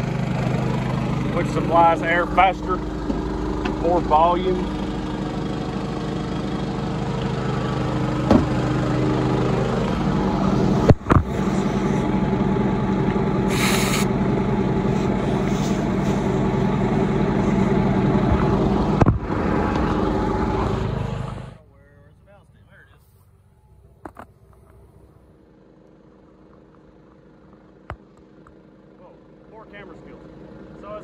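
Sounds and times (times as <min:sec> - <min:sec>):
engine idling: 0:00.0 - 0:31.0
compressed air hiss: 0:13.4 - 0:14.1, 0:14.9 - 0:16.4.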